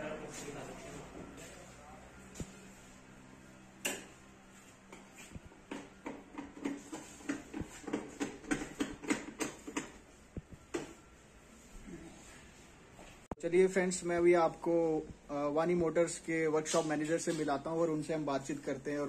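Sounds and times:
hand tools clicking and knocking: 0:05.7 - 0:10.0.

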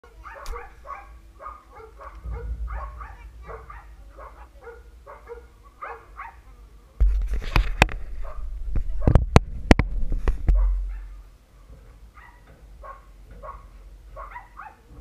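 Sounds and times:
dog barking: 0:00.1 - 0:06.5, 0:08.2 - 0:09.2, 0:10.5 - 0:11.3, 0:12.1 - 0:15.0
loud low bump and rumble: 0:02.1 - 0:04.3.

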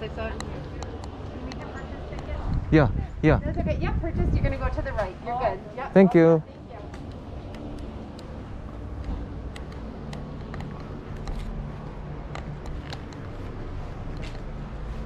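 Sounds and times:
wind rumble on microphone: 0:00.0 - 0:05.9
footsteps on pavement: 0:06.5 - 0:15.0.

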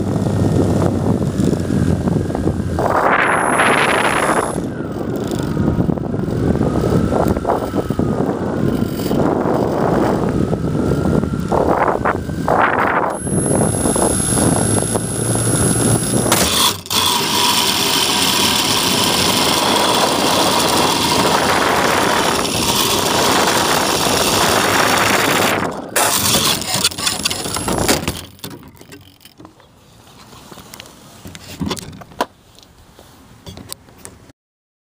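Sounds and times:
model plane motor and propeller: 0:00.0 - 0:31.9
wheels rolling on pavement: 0:00.0 - 0:34.1
wind: 0:00.0 - 0:34.3.

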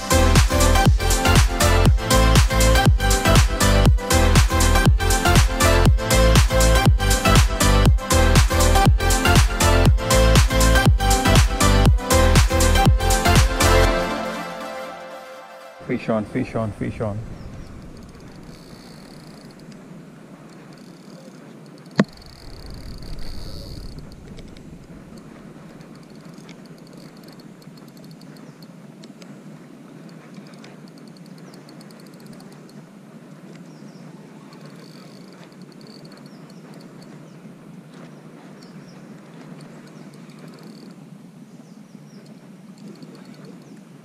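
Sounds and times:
low rumble: 0:15.8 - 0:18.6, 0:22.0 - 0:25.8
insect chirring: 0:17.8 - 0:28.7, 0:30.8 - 0:32.8, 0:34.5 - 0:37.2, 0:39.6 - 0:41.0
fishing reel click: 0:17.9 - 0:19.8, 0:20.5 - 0:25.3, 0:34.5 - 0:37.1.

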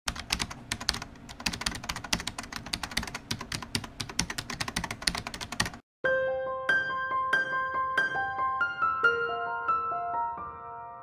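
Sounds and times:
fast typing on keyboard: 0:00.1 - 0:05.8.

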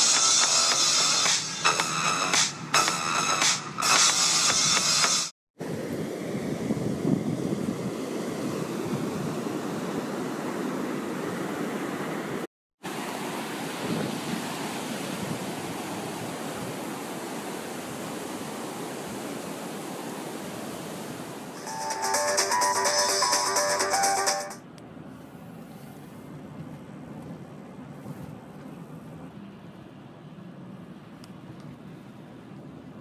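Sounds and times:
ocean waves on sandy beach: 0:05.6 - 0:22.1.

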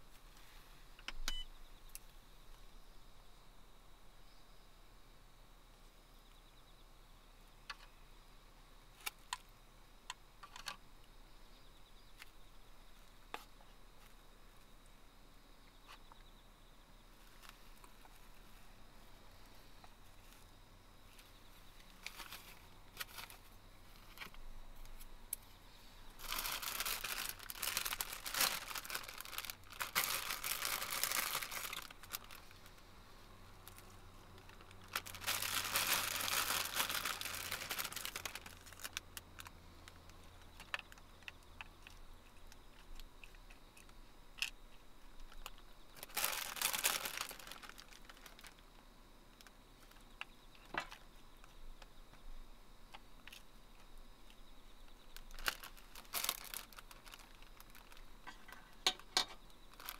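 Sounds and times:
packaging crinkling and rustling: 0:21.8 - 0:25.0, 0:26.2 - 0:32.8, 0:33.6 - 0:39.5, 0:45.3 - 0:48.6, 0:55.1 - 0:59.9.

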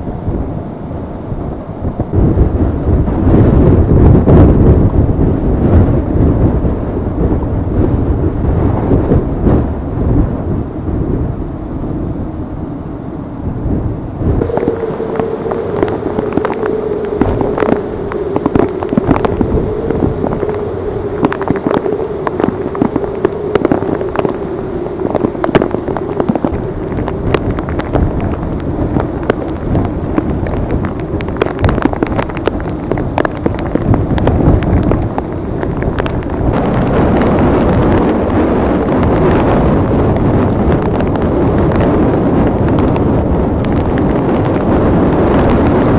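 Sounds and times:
rain on street: 0:00.0 - 0:13.8, 0:14.4 - 0:45.9
steady hum: 0:00.0 - 0:43.0
low rumble: 0:00.0 - 0:45.9
wind buffeting microphone: 0:00.0 - 0:45.9
rapid crackling clicks: 0:14.4 - 0:42.0
rushing splashing water: 0:14.4 - 0:45.9.

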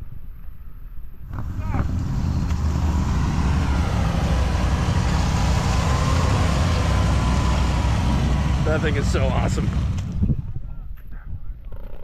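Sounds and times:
vehicle engine running loudly: 0:01.2 - 0:10.5.

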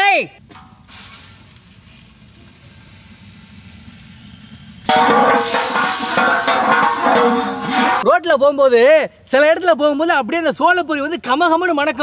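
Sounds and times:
butter sizzling in pot: 0:00.6 - 0:08.0.

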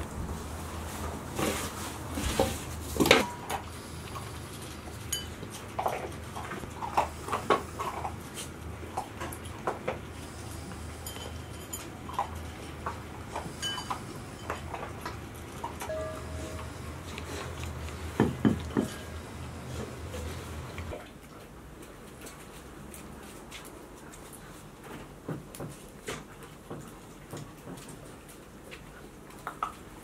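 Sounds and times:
puppies eating kibble: 0:00.0 - 0:30.0
bowls clinking on hard floor: 0:13.5 - 0:14.7, 0:15.9 - 0:16.9, 0:18.2 - 0:19.3.

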